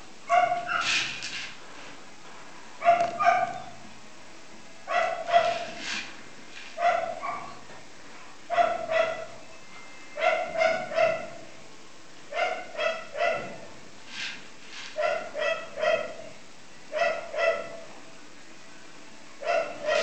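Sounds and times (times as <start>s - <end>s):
dog yipping: 0.3s - 1.1s, 2.8s - 3.8s, 4.9s - 5.8s, 6.8s - 7.6s, 8.5s - 9.4s, 10.2s - 11.4s, 12.3s - 13.6s, 15.0s - 16.2s, 17.0s - 17.8s, 19.4s - 20.0s.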